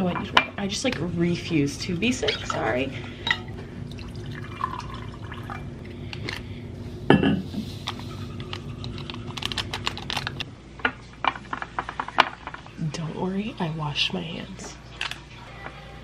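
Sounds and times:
water pouring into glass: 3.3 - 5.8.

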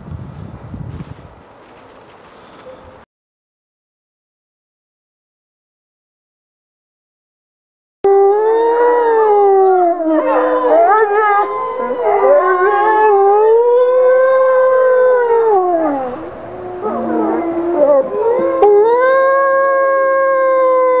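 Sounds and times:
wolves howling: 8.1 - 21.0.

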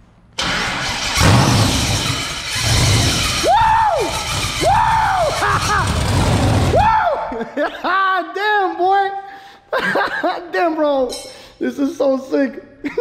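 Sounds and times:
engine running unevenly: 0.4 - 3.5, 4.1 - 6.8
high whoops rising and falling: 1.2 - 7.4.

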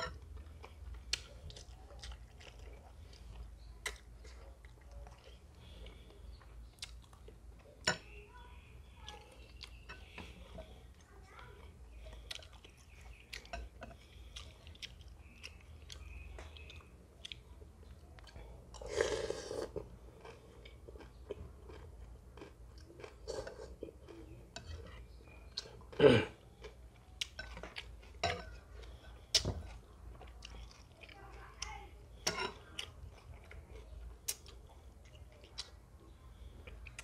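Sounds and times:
wet chewing and lip smacks: 0.5 - 7.8, 11.0 - 18.8, 32.6 - 37.0
slurping noodles: 18.8 - 19.8.

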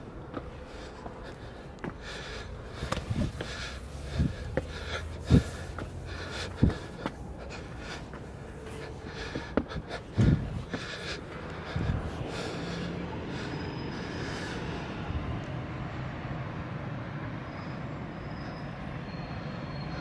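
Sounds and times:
footsteps on stone steps: 0.0 - 12.8.

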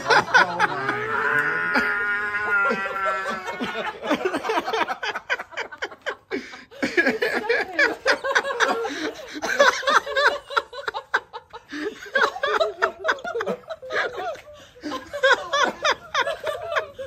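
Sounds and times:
child squealing and laughing: 0.8 - 3.8.

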